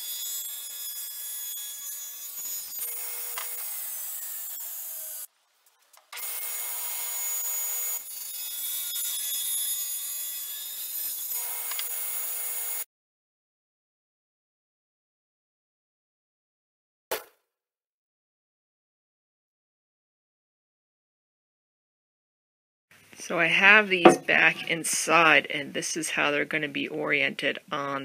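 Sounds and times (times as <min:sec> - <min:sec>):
table saw cutting wood: 0:00.0 - 0:05.3, 0:06.2 - 0:12.9.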